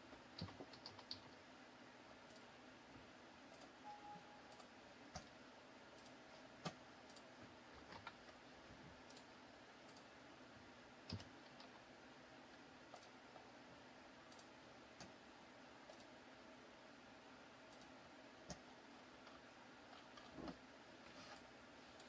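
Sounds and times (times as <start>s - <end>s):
low steady hiss: 0.0s - 22.0s
computer mouse clicks: 0.3s - 1.4s, 2.2s - 2.5s, 3.5s - 5.3s, 5.9s - 8.4s, 9.0s - 10.1s, 11.1s - 11.9s, 12.5s - 13.5s, 14.2s - 15.2s, 15.8s - 16.2s, 17.7s - 20.6s.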